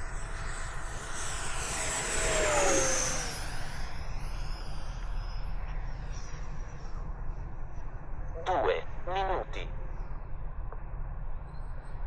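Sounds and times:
jet fan whine flying past: 0:00.0 - 0:09.1.

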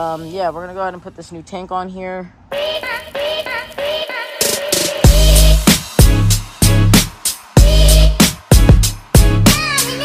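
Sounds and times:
drum hits: 0:04.4 - 0:09.8.

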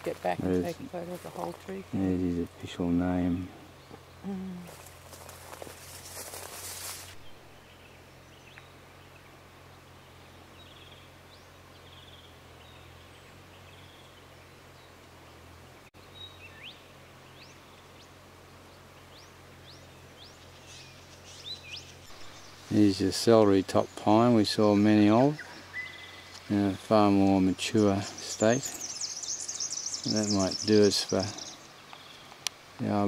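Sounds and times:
high bird chirps: 0:25.3 - 0:26.9, 0:28.0 - 0:32.3.

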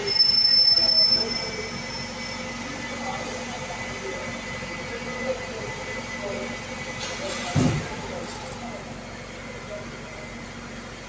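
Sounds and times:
high-pitched brake squeal: 0:00.0 - 0:03.2.

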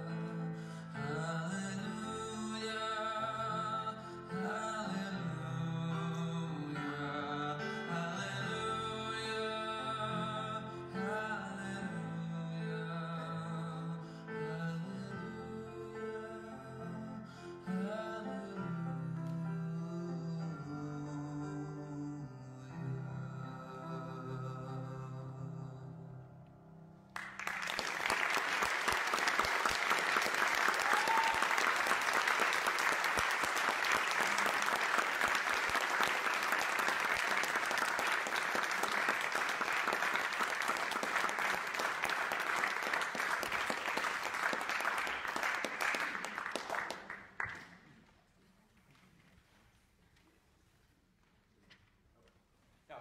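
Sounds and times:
audience applause: 0:27.2 - 0:47.8.

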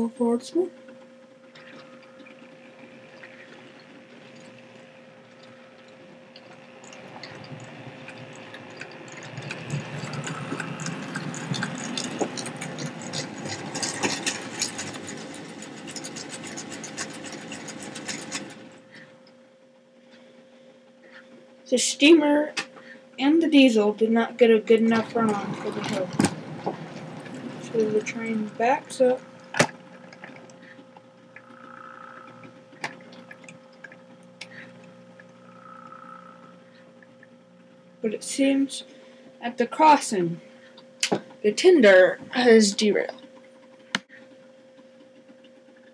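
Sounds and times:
faint electrical hum: 0:00.0 - 0:45.9
model train motors whirring: 0:01.5 - 0:19.0, 0:24.0 - 0:33.5
wheels clicking over rail joints: 0:06.4 - 0:18.8, 0:24.7 - 0:33.5.

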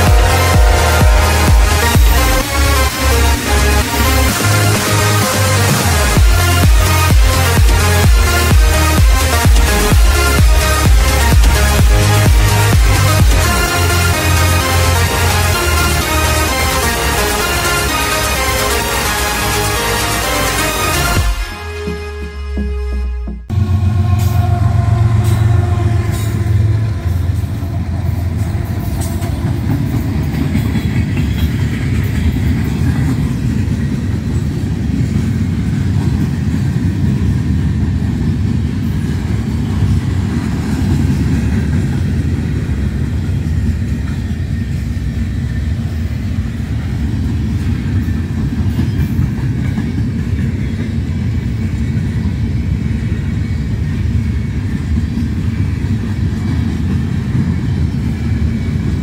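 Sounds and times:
steel wheels rumbling on rail: 0:00.0 - 0:21.2, 0:23.5 - 0:59.0
locomotive engine hum: 0:00.0 - 0:59.0.

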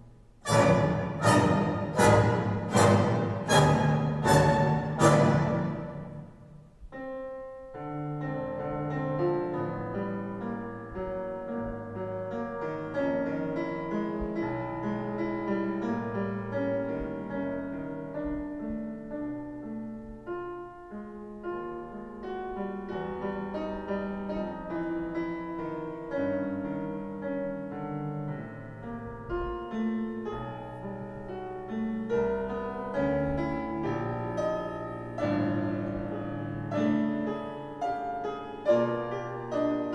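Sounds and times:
piano music over sound system: 0:00.0 - 0:39.9.

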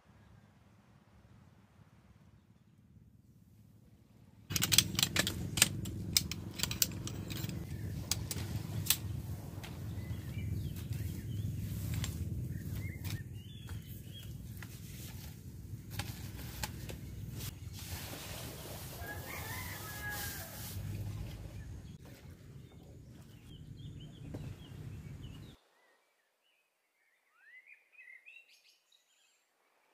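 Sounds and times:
low steady rumble: 0:00.2 - 0:17.8
metal poles clicking and rattling: 0:04.5 - 0:09.8.

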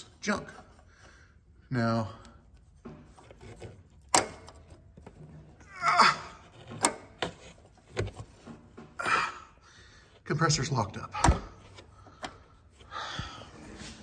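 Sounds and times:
sharp metal clicks: 0:04.0 - 0:04.8.

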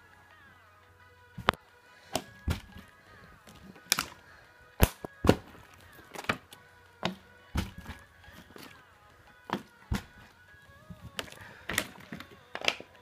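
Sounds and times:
faint background music: 0:00.0 - 0:13.0
plastic bottle knocking and thudding: 0:02.2 - 0:02.8, 0:05.2 - 0:05.5, 0:07.0 - 0:08.0, 0:09.5 - 0:10.2.

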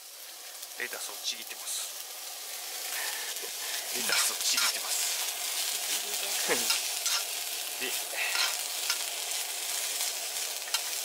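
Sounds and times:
onions sizzling in frying pan: 0:00.0 - 0:11.0
spoon scraping pan: 0:04.1 - 0:04.8, 0:06.6 - 0:07.4, 0:08.3 - 0:09.1.

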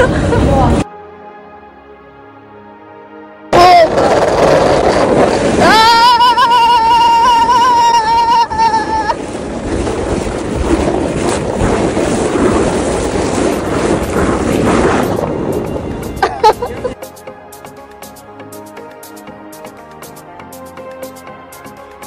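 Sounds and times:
tube scraping on snow: 0:03.6 - 0:15.8
wind rushing on microphone: 0:03.6 - 0:17.0
person screaming: 0:05.6 - 0:09.2.

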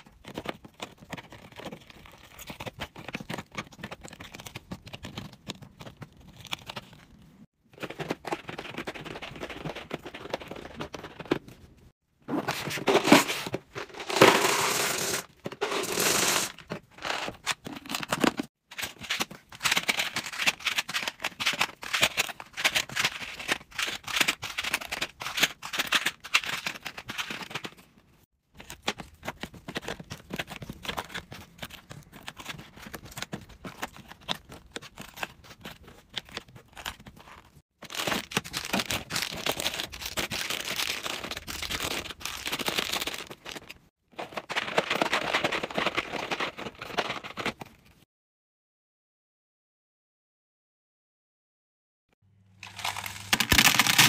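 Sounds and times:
packs clicking into boxes: 0:12.3 - 0:27.9, 0:28.6 - 0:47.8, 0:52.6 - 0:54.0
hard candy pouring into plastic tub: 0:13.8 - 0:16.5, 0:52.6 - 0:54.0
plastic wrappers crinkling: 0:36.4 - 0:43.8, 0:52.6 - 0:54.0.

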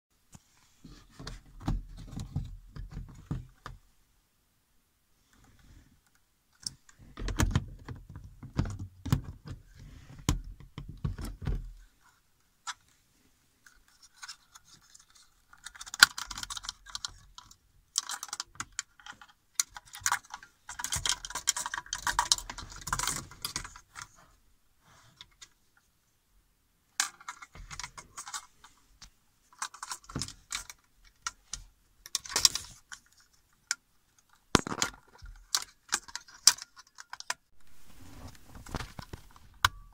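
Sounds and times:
plastic parts clicking and rattling: 0:13.6 - 0:24.3, 0:27.0 - 0:37.5, 0:38.4 - 0:39.9.

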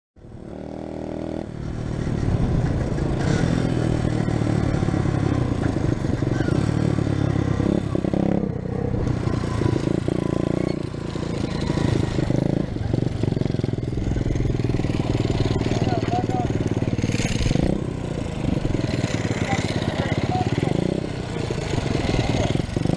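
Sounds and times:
motorbike engine revving: 0:00.3 - 0:22.9.

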